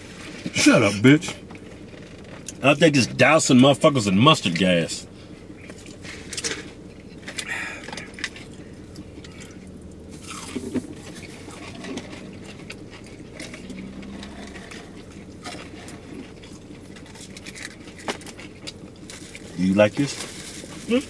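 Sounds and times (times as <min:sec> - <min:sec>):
low hum: 0:00.0 - 0:19.6
chewing food: 0:05.6 - 0:19.6.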